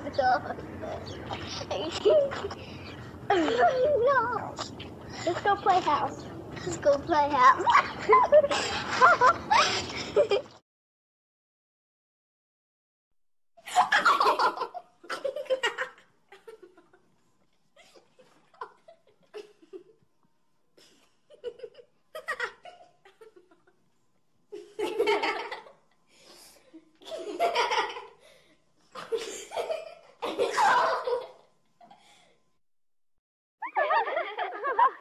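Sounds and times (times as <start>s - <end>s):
quiet giggles: 1.1s - 3.8s
human laughter: 7.6s - 10.6s, 29.0s - 31.4s, 33.6s - 35.0s.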